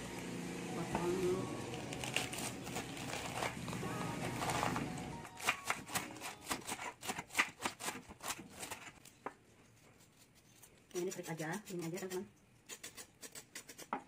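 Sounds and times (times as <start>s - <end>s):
knife chopping cabbage on board: 1.8s - 9.0s.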